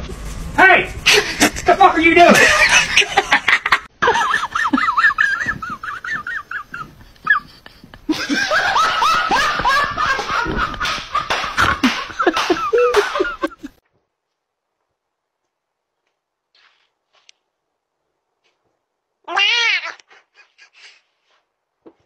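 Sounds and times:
person laughing: 0:01.0 - 0:13.8.

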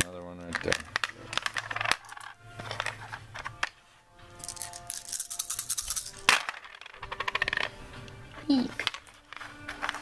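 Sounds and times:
plastic dice clattering on table: 0:00.0 - 0:03.8, 0:04.4 - 0:07.8.

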